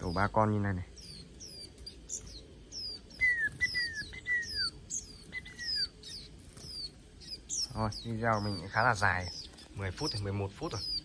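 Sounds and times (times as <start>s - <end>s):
birds chirping: 0.0s - 11.0s
falling bird whistles: 1.0s - 7.7s.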